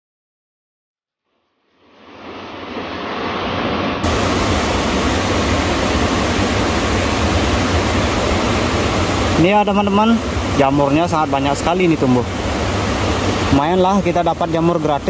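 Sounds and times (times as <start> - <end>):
river water rushing: 1.9 - 15.0.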